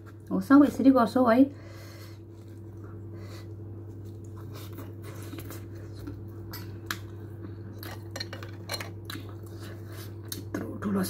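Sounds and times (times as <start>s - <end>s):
steady low hum: 0.0s - 11.0s
chewing: 2.3s - 8.1s, 8.9s - 10.5s.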